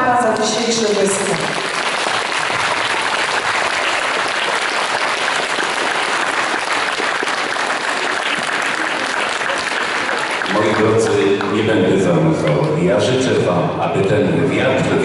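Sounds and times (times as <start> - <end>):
audience applauding: 1.2 - 11.7.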